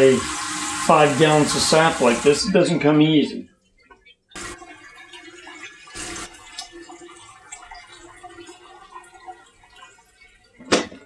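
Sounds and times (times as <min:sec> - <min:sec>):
liquid trickling into a pot: 0:03.6 - 0:11.0.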